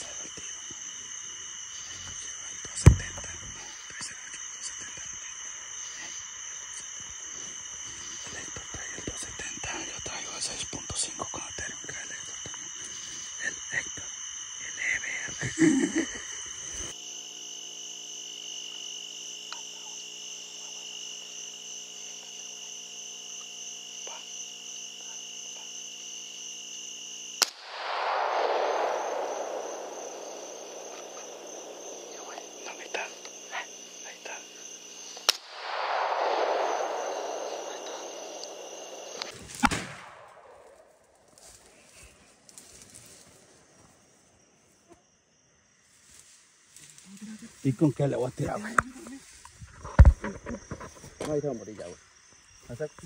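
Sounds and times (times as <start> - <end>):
crickets chirping: 0.0 - 53.0
rifle shots: 35.3 - 40.7.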